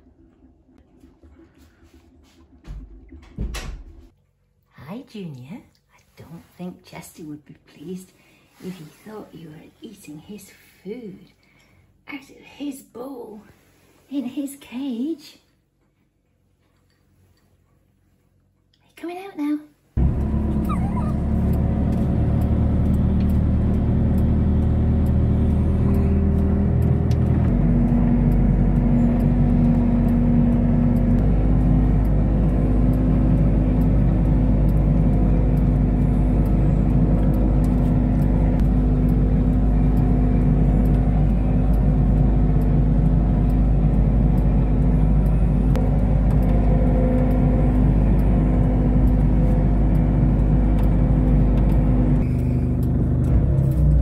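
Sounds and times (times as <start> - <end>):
engine running inside cab: 20.0 - 54.0.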